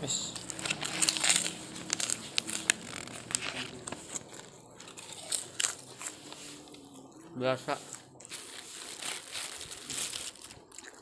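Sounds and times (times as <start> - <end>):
crunching crisp crackers: 0.0 - 11.0.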